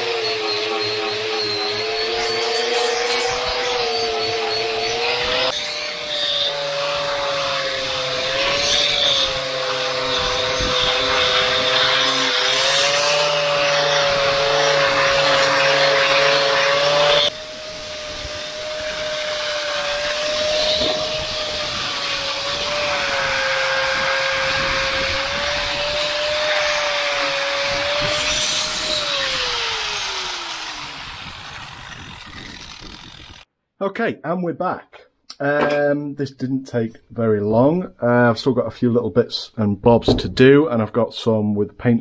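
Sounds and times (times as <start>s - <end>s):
angle grinder whining: 0.0s - 33.5s.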